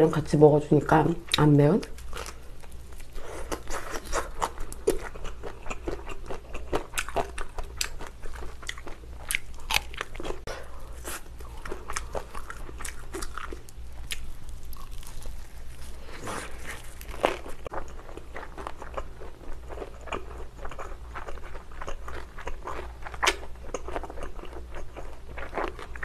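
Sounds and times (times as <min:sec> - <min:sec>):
biting and chewing: 0:02.0 - 0:26.0.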